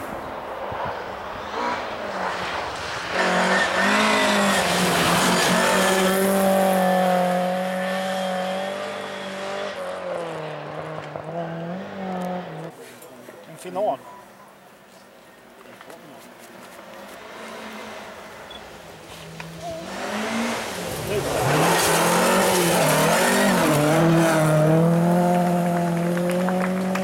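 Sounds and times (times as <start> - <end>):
rally car engine revving: 1.4 - 12.8, 17.1 - 27.0
tyres on gravel: 15.4 - 27.0.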